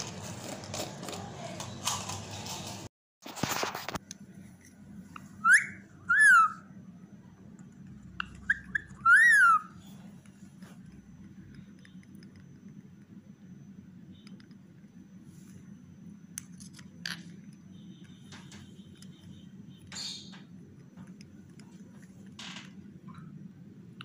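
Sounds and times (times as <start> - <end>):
rubber toy squeaking: 5.4 - 6.6, 8.3 - 9.7.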